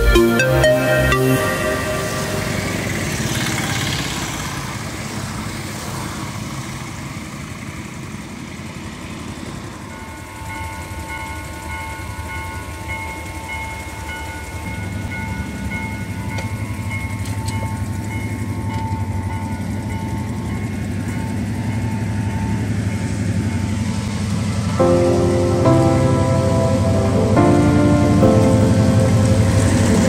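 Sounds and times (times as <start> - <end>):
level crossing warning alarm: 0.0 - 4.7, 24.8 - 30.0
train rumble: 0.0 - 30.0.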